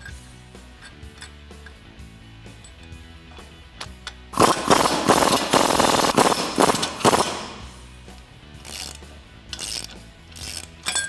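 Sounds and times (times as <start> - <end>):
ratchet clicking: 8.6 - 11.0.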